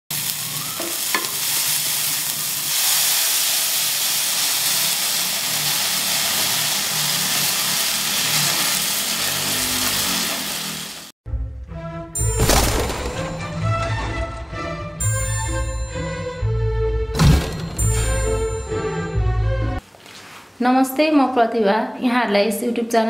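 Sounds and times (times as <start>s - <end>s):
food sizzling in hot oil: 0.1s - 11.1s.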